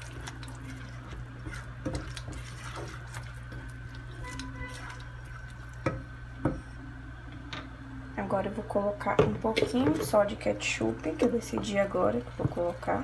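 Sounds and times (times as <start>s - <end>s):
spatula scraping the pan: 0.0s - 5.1s
spatula stirring sauce in a pot: 0.0s - 6.6s
steady low hum: 0.0s - 13.0s.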